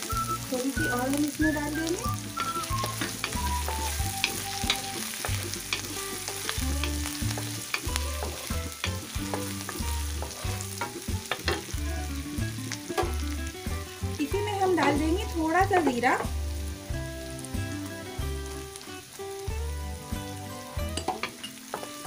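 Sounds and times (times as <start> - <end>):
food sizzling in hot oil: 0.0 - 22.0
wooden spatula scraping pan: 2.4 - 11.8.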